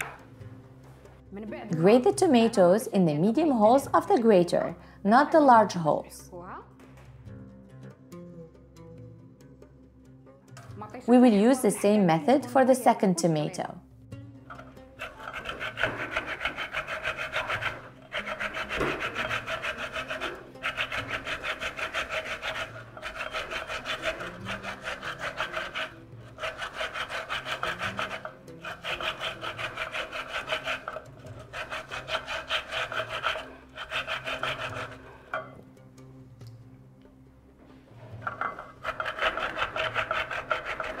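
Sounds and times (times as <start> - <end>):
tomato rasping on a grater: 14.5 - 35.1, 38.2 - 41.0.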